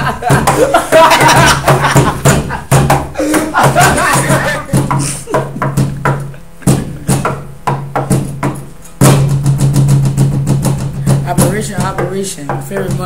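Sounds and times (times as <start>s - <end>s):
hip-hop beat: 0.0s - 9.4s, 10.6s - 13.0s.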